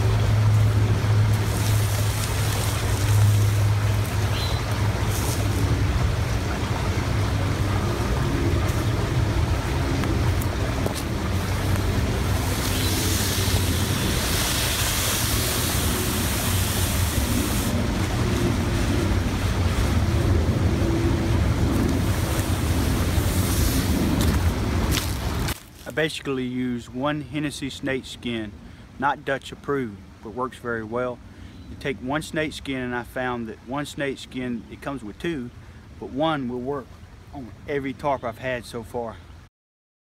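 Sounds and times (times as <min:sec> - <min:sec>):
running creek: 0:00.0 - 0:39.5
nylon tarp swishing: 0:01.3 - 0:03.8, 0:05.0 - 0:05.8, 0:21.7 - 0:25.9.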